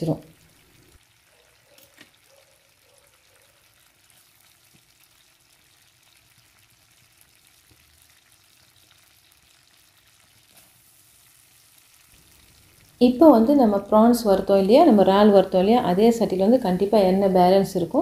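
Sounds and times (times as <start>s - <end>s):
oil sizzling in a wok: 0.0s - 18.0s.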